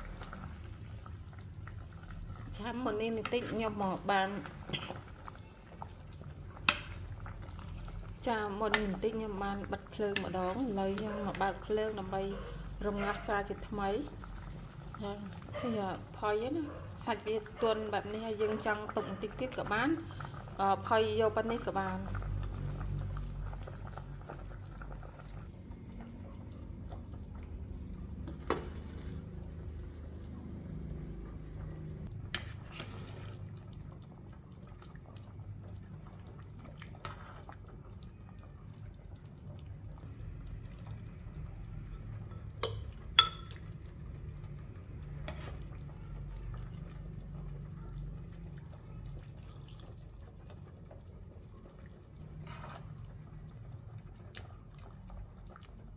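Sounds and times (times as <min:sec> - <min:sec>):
broth slopping and dripping: 0:00.0 - 0:55.9
ladle clinking against pot: 0:42.3 - 0:43.6.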